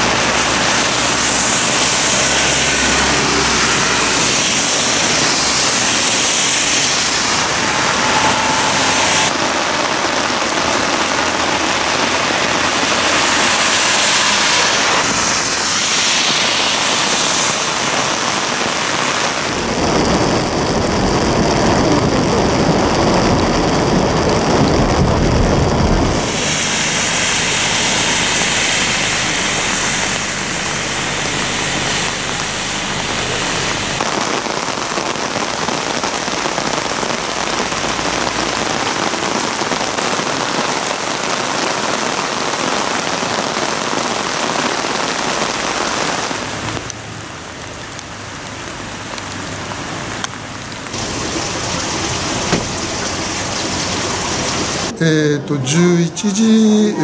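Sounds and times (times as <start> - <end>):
heavy rain hissing: 0.0 - 55.2
rain drumming on windshield: 16.2 - 28.1, 30.0 - 54.9.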